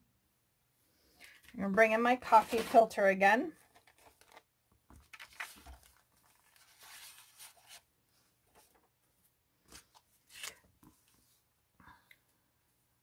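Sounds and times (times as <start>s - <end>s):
paper filter rustling: 2.2s - 7.9s.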